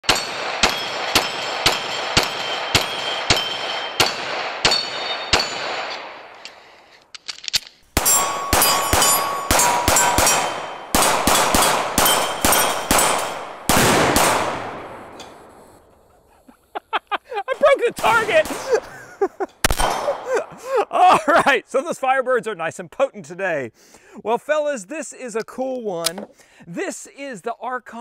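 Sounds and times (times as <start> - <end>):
steel targets ringing: 0.0 - 6.1, 8.0 - 13.7
pistol shots: 0.0 - 6.4, 7.9 - 15.4, 18.0 - 18.9, 19.6 - 20.3.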